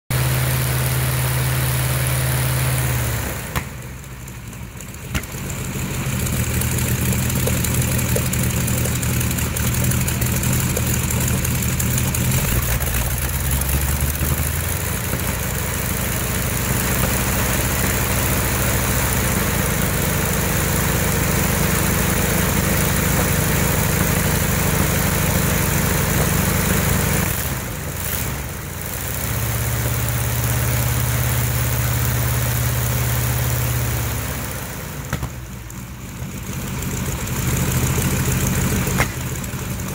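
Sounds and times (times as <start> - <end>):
radial engine running: 0.1 - 33.6
engine pops: 3.4 - 19.0, 35.1 - 35.8, 38.0 - 39.9.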